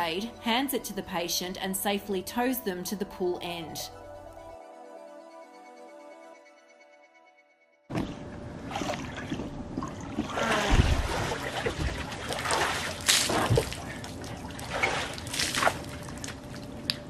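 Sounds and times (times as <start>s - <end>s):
water splashing in hot tub: 7.9s - 17.0s.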